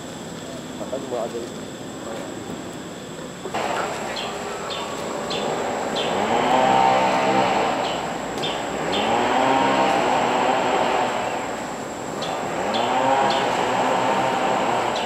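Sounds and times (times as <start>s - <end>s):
vehicle engine revving: 3.5s - 15.0s.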